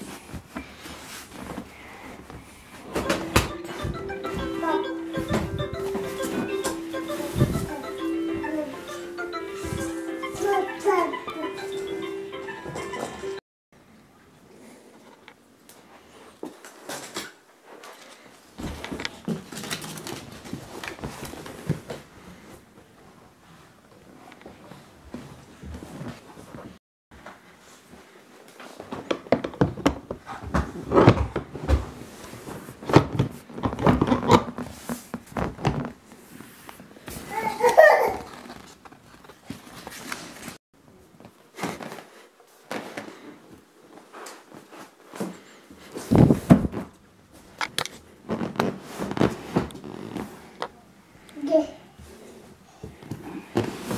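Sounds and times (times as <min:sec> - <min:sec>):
knocks and clicks: 0:03.0 - 0:04.5
tissue paper rustling: 0:03.8 - 0:09.0
rustling plastic wrapping: 0:19.1 - 0:21.7.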